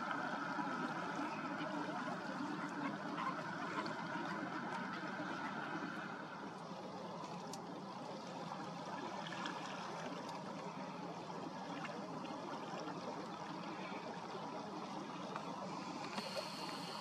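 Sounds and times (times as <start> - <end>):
faint ticks: 7.3 - 7.7, 15.3 - 17.0.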